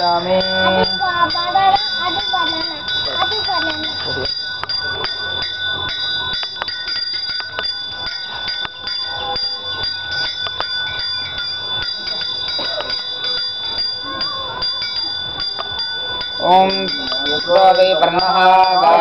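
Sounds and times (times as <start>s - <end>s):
hand bell ringing: 0.0s - 19.0s.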